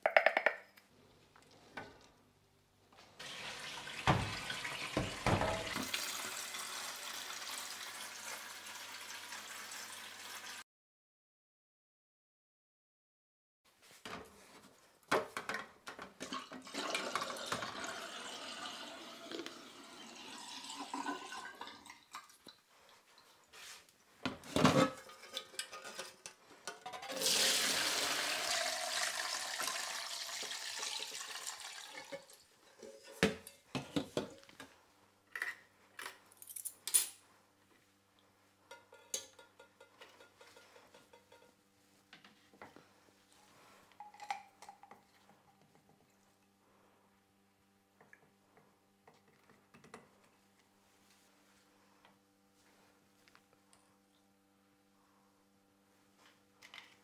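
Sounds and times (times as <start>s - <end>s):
water sloshing and running: 3.2s - 10.6s, 27.0s - 33.1s.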